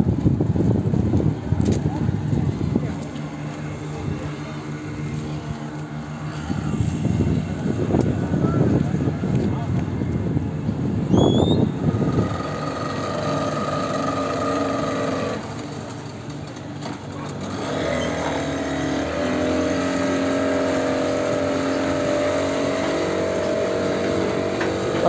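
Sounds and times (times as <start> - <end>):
boat engine running: 0.1 - 25.0.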